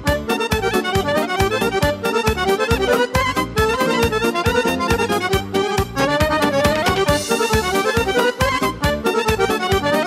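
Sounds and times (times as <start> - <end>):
accordion-like keyboard melody: 0.0 - 10.0
clarinet melody: 0.0 - 10.0
steady drum beat: 6.0 - 8.0.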